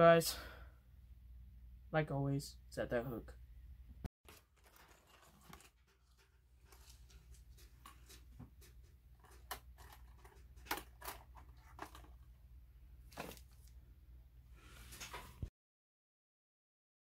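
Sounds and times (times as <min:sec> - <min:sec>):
plastic box clicks and rustles: 0:04.2 - 0:12.3.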